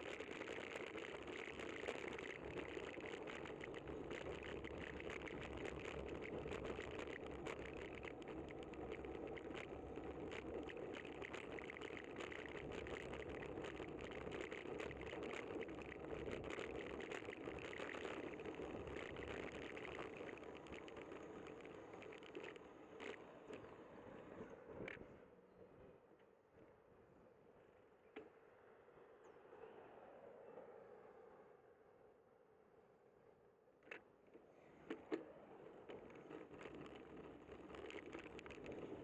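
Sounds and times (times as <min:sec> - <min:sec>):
camera rattling and clicking: 0:00.0 - 0:23.6, 0:35.9 - 0:39.0
road and wind noise: 0:00.0 - 0:33.1, 0:33.8 - 0:39.0.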